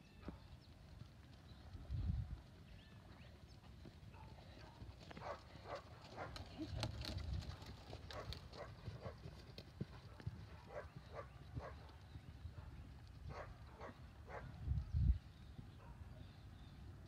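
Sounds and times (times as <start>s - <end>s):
horse hoofbeats on sand: 0.1s - 12.7s.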